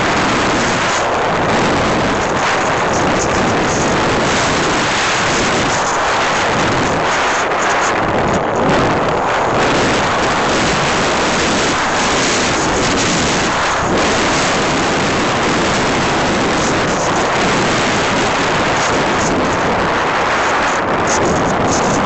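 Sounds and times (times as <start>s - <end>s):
aircraft engine running: 0.0s - 22.0s
wind rushing over microphone: 0.0s - 22.0s.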